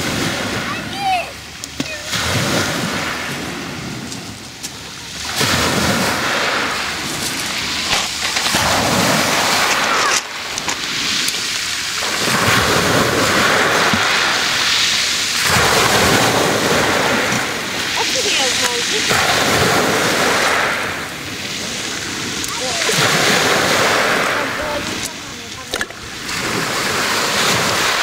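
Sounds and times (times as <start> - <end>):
waves crashing on pebble beach: 0.0 - 28.0
pebbles clattering in backwash: 7.0 - 17.5.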